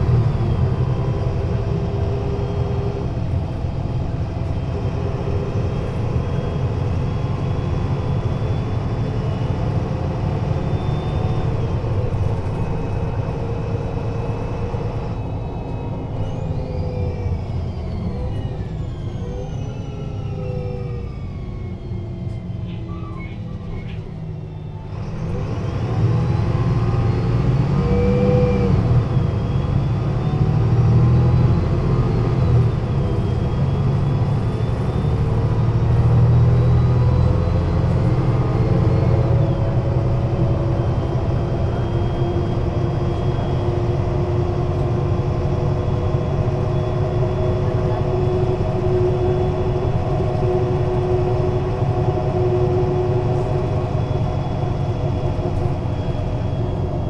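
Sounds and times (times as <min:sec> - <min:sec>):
bus diesel engine rumble: 0:00.0 - 0:57.0
gearbox whine: 0:27.7 - 0:57.0.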